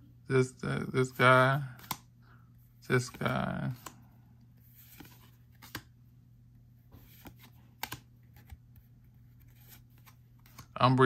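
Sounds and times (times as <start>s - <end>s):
trading cards clicking and tapping: 1.8s - 2.1s, 7.0s - 8.6s, 9.6s - 10.8s.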